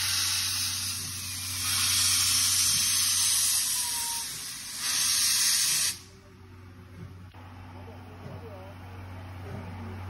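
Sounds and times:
steam hissing: 0.0s - 6.1s.

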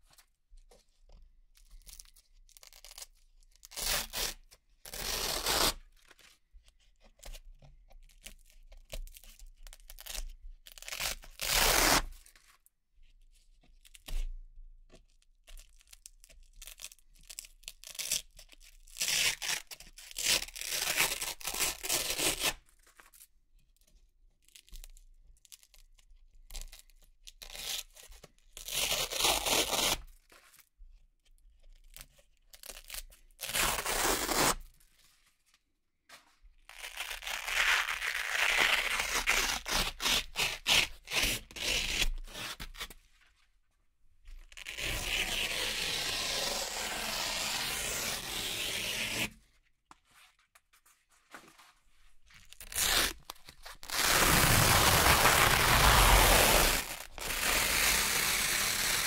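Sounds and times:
velcro strips ripping apart: 2.6s - 5.8s, 9.9s - 12.3s, 18.9s - 22.6s, 28.6s - 30.0s, 32.6s - 34.8s, 36.7s - 43.0s, 44.6s - 49.4s, 52.4s - 59.0s.

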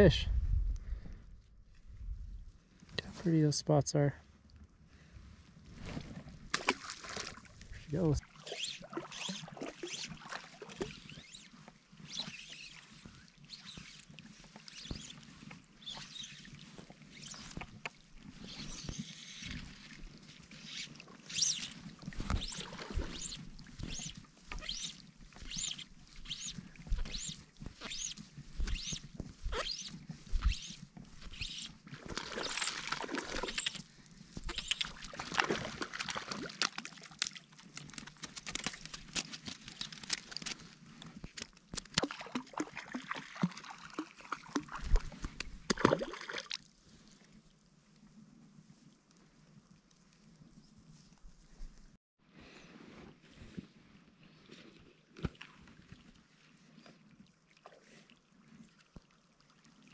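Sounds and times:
water splashing and sloshing: 5.3s - 47.6s, 54.8s - 59.9s
fly line rasping strokes: 8.0s - 35.1s.

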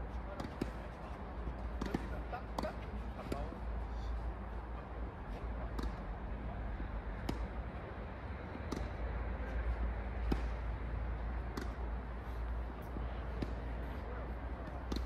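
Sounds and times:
tennis ball struck by rackets: 1.7s - 3.5s, 5.7s - 6.0s, 7.2s - 7.6s, 8.6s - 9.0s, 10.2s - 10.8s, 11.4s - 11.9s.

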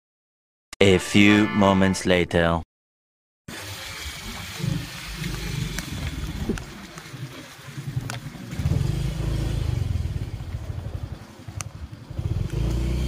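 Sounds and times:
motorcycle engine rumble: 3.7s - 13.0s.

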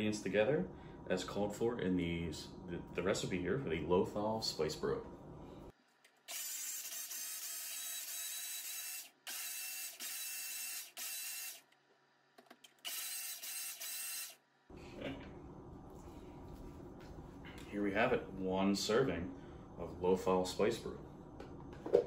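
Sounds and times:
blender running: 6.3s - 11.6s, 12.8s - 14.4s.

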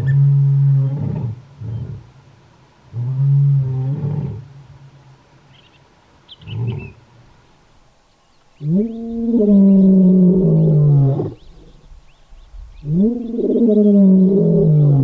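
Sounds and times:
lion roaring: 8.6s - 11.8s, 12.8s - 15.0s.

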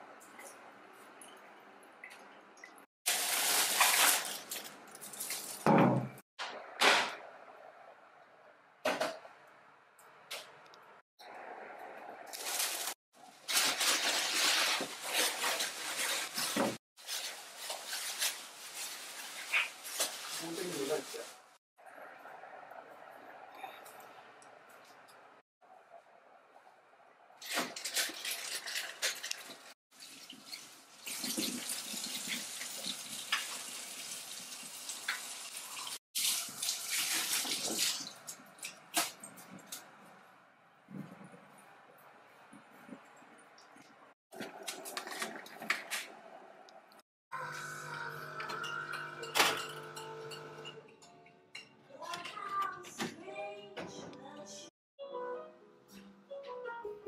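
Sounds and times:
plastic packaging crinkling: 3.1s - 5.7s, 12.3s - 21.2s.

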